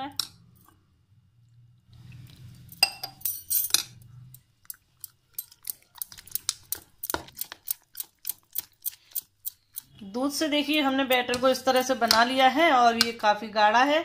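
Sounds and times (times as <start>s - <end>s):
spoon beating thick batter: 4.6s - 13.2s.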